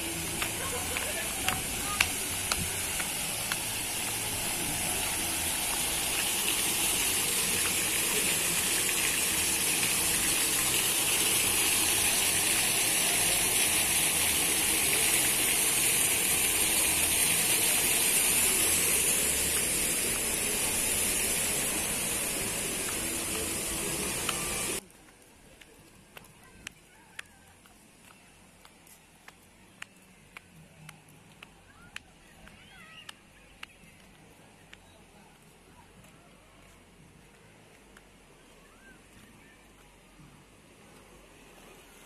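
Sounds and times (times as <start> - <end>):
water gushing from waterfall: 0.0 - 24.8.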